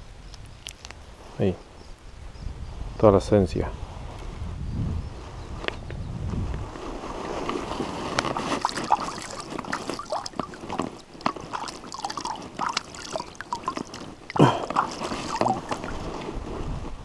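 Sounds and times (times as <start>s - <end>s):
water sloshing and dripping: 8.1s - 16.4s
water splashes: 8.2s - 16.4s.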